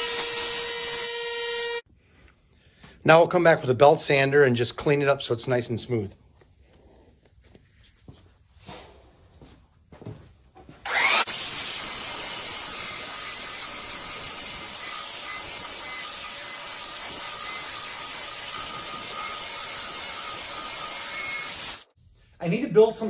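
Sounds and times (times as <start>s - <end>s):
belt sander whining: 10.8s - 21.9s.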